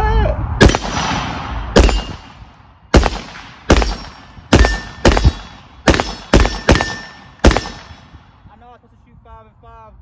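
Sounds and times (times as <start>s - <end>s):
rifle shots with echo: 0.6s - 8.4s.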